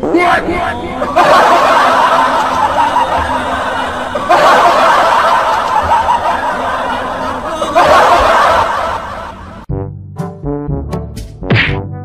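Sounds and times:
crowd laughing: 0.2 - 9.6.

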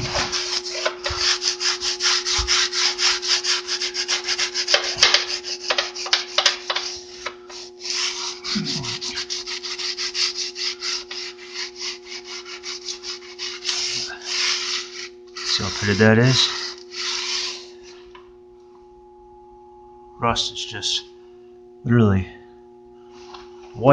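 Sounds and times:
scouring pad scrubbing metal: 0.0 - 17.8
steady low hum: 0.0 - 23.9.

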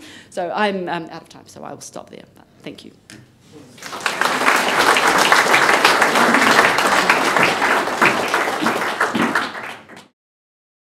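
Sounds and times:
audience applauding: 3.8 - 10.1.

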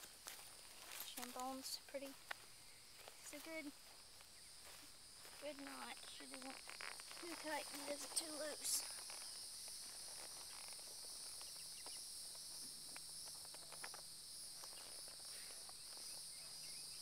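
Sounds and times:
insects calling: 0.0 - 17.0
faint ticks: 5.5 - 17.0.

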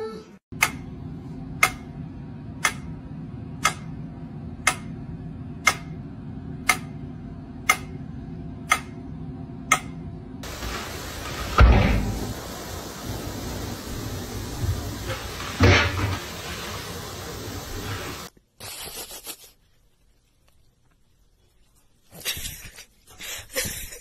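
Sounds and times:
low steady hum: 0.6 - 18.3
metronome ticking: 1.6 - 1.9, 5.6 - 6.0, 8.7 - 9.0.

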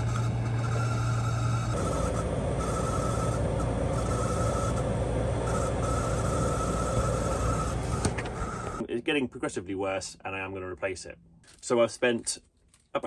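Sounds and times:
heater fan motor rasping: 0.0 - 8.8
high whine: 0.0 - 8.8.

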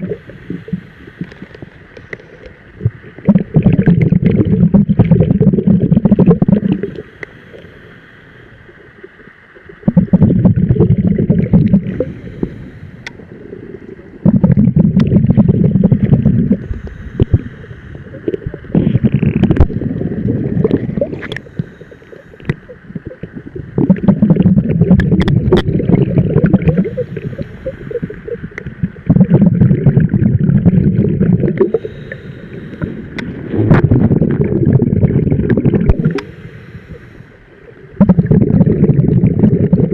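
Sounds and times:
bubbles bursting from regulator: 0.0 - 1.4, 2.8 - 7.0, 9.7 - 12.2, 14.2 - 21.6, 22.4 - 32.0, 33.2 - 36.3, 37.9 - 39.9
diver inhaling through regulator: 0.0 - 2.5, 6.6 - 8.8, 11.7 - 13.3, 15.5 - 22.8, 26.6 - 28.4, 31.5 - 34.4, 35.8 - 37.5.

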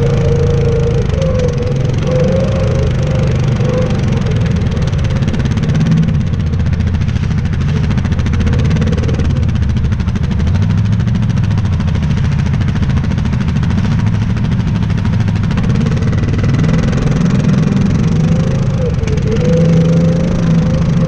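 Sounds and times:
quad engine running: 0.0 - 21.0.

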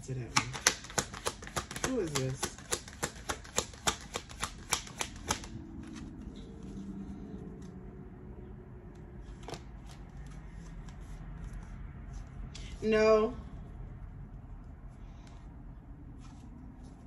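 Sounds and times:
faint room hum: 0.0 - 17.0
cards being shuffled: 0.2 - 7.9, 8.9 - 12.5.

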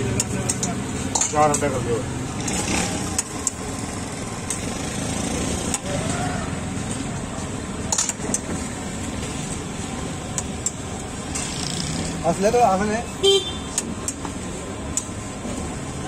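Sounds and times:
street traffic noise: 0.0 - 16.0.

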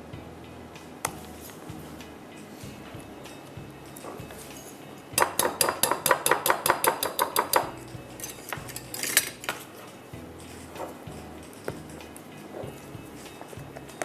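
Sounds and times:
whisk clinking against glass bowl: 3.9 - 9.7.

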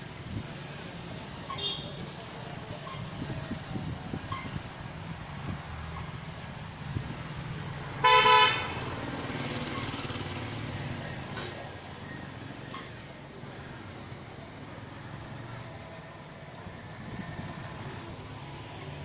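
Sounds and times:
steady high hiss: 0.0 - 19.0
vehicle horn honk: 8.0 - 8.8.

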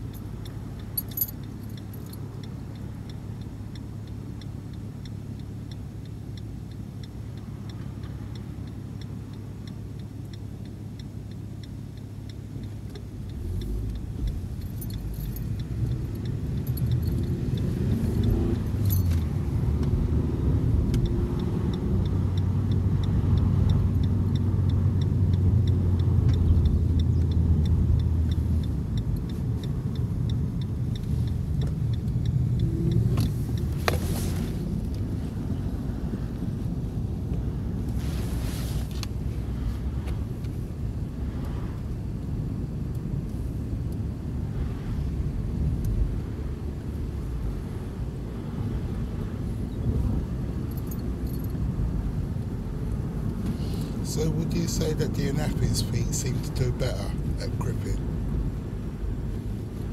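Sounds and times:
car engine idling: 0.0 - 19.7, 48.2 - 59.9
engine and road drone: 0.0 - 59.9
faint light ticking: 0.0 - 59.9
car accelerating: 10.5 - 59.9.

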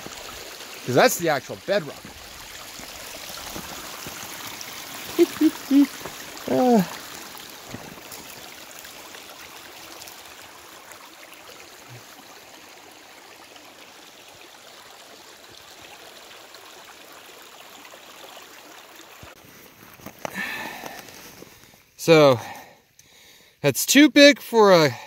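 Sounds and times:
stream rushing water: 0.0 - 19.4.

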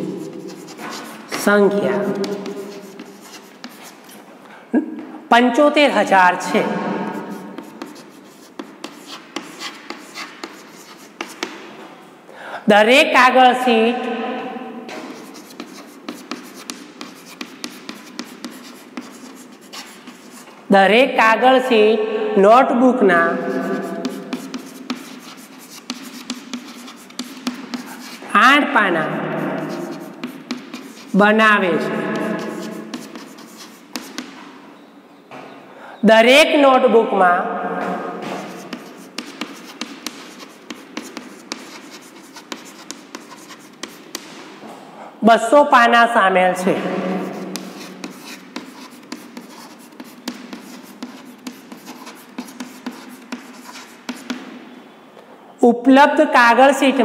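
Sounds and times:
chalk scratching on blackboard: 0.0 - 4.2, 6.4 - 11.7, 14.9 - 20.7, 23.3 - 34.6, 38.2 - 44.6, 46.9 - 54.9.

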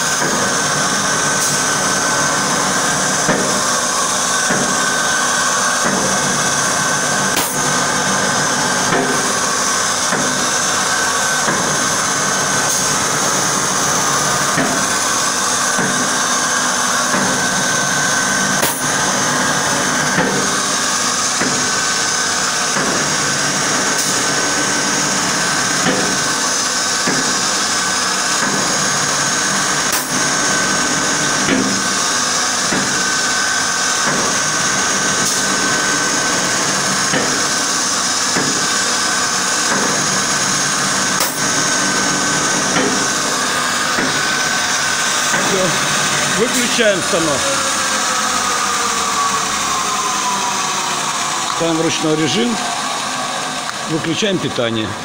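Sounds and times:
machine cutter whine and hiss: 0.0 - 55.0
sharp machine click: 7.4 - 7.6, 18.6 - 18.8.

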